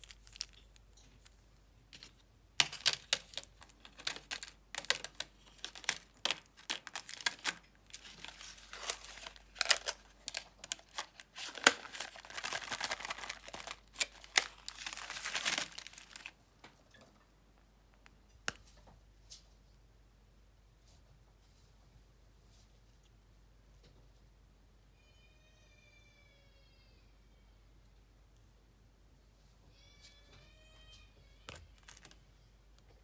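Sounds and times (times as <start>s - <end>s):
plastic trays crinkling and clicking: 0.0s - 18.9s, 31.5s - 32.2s.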